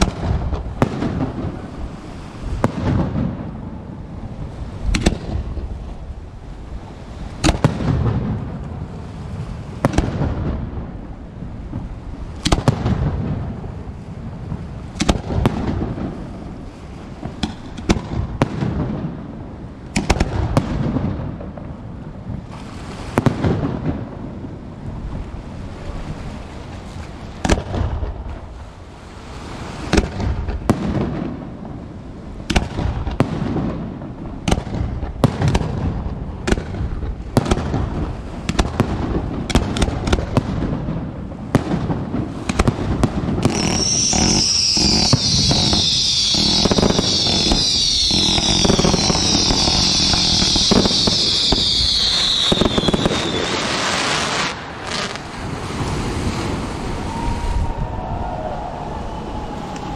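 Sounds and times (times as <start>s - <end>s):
fireworks bursting with sharp bangs: 0.0s - 6.0s, 7.2s - 25.0s, 27.4s - 28.5s, 29.5s - 57.4s
low rolling rumble: 55.5s - 59.9s.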